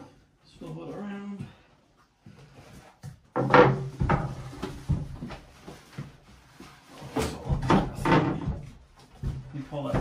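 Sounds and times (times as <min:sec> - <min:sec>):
wooden shelf knocking and scraping: 0:03.2 - 0:10.0.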